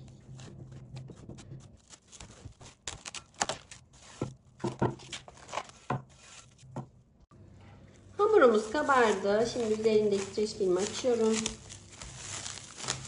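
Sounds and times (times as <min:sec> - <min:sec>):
cling film crinkling: 0:01.8 - 0:04.2, 0:08.3 - 0:13.0.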